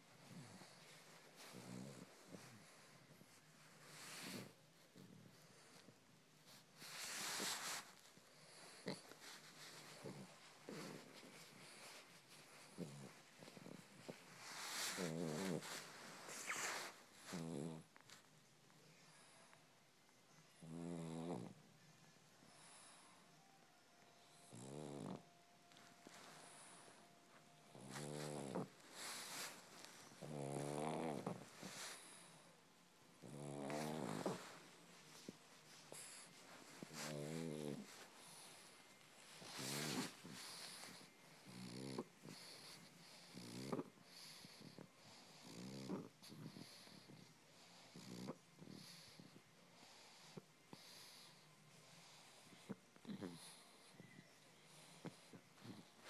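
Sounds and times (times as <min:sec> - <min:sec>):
dog snoring: 0:00.1 - 0:18.3, 0:20.5 - 0:21.6, 0:24.2 - 0:32.6, 0:33.2 - 0:56.0
dog purr-like rumble: 0:08.6 - 0:17.8, 0:33.2 - 0:34.6, 0:39.4 - 0:42.7
breathy hiss: 0:25.9 - 0:56.0.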